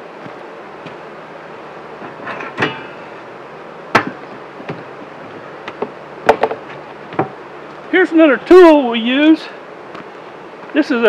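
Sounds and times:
wooden beehive boxes knocking: 3.9 - 7.4.

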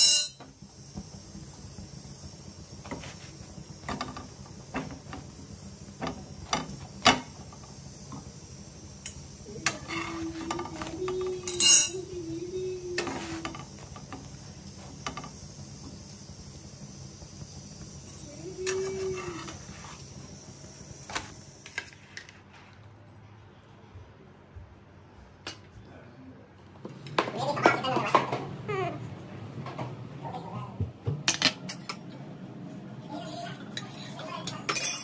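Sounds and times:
steady hiss: 0.0 - 22.3
wavering hum: 8.1 - 20.6.

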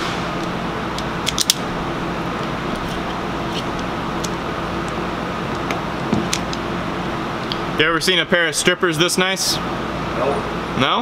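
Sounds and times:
mechanical drone with low hum: 0.0 - 11.0
wire strippers clicking: 0.4 - 1.7, 2.4 - 6.6.

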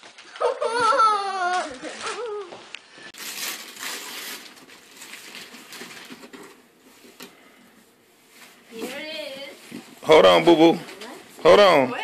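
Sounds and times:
wrapping paper tearing and crinkling: 0.0 - 6.6.

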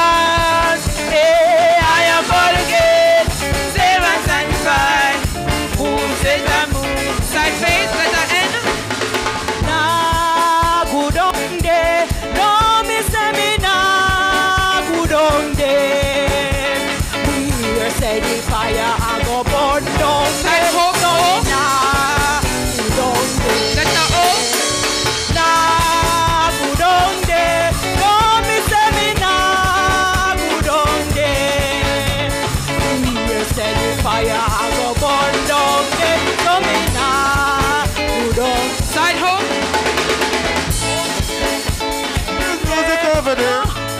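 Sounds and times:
gospel chorus singing: 0.0 - 8.8, 14.8 - 38.9
bass: 0.0 - 43.9
drums: 0.0 - 43.9
guitar: 0.0 - 43.9.

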